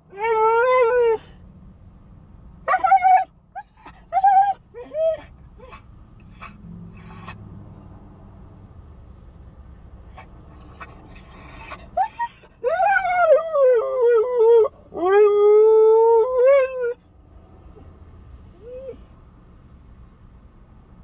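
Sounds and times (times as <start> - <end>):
puppy yelping: 2.7 - 7.4, 9.7 - 13.5
puppy howling: 9.8 - 17.0.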